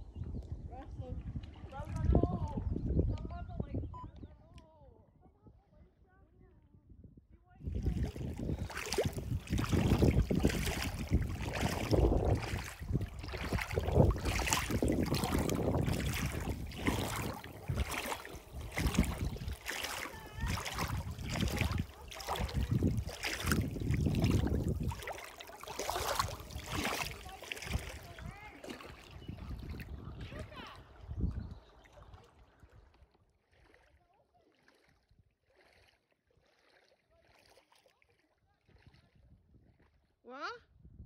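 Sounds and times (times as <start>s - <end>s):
wind buffeting microphone: 0.0s - 33.0s, 38.7s - 40.1s, 40.7s - 41.0s
water lapping over stones: 7.7s - 39.0s.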